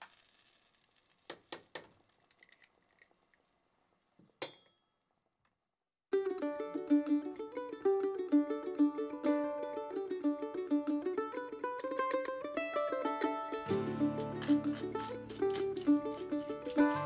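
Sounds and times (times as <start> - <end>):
plucked-string music: 6.1 - 17.0.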